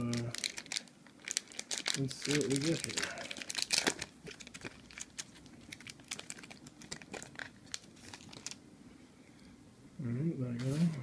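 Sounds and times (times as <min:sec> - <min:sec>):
foil wrapper crinkling: 0:00.0 - 0:08.6.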